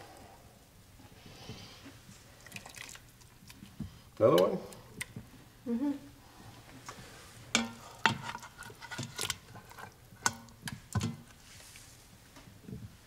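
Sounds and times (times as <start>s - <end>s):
ladle scraping metal pot: 7.5s - 11.4s.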